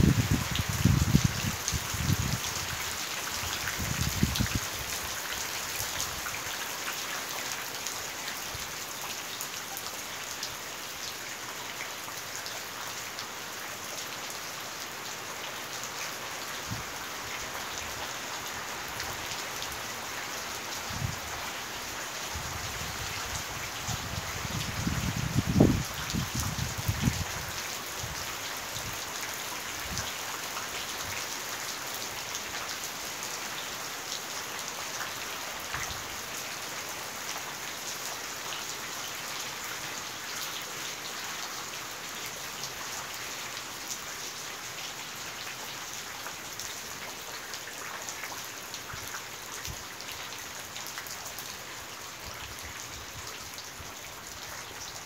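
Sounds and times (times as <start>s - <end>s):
rain falling on roofs: 0.0s - 55.0s.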